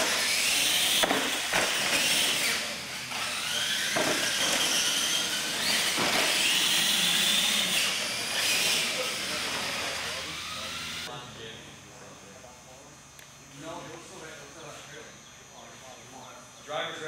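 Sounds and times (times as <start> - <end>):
electric motors whining: 0.0 - 12.9.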